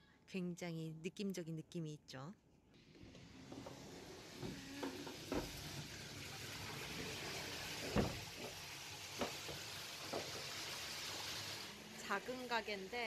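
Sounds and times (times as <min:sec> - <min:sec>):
food deep-frying sizzle: 0:04.2 - 0:13.0.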